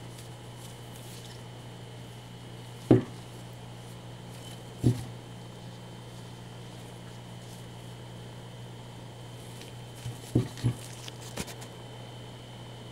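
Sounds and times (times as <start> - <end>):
low electrical hum: 0.0 - 12.9
dull thumps of glass plate: 2.9 - 3.3, 4.4 - 5.2, 10.0 - 10.9.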